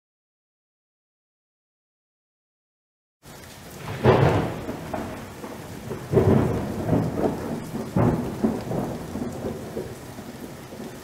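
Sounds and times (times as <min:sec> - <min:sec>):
rain: 0:03.2 - 0:11.0
thunder rolling: 0:03.8 - 0:11.0.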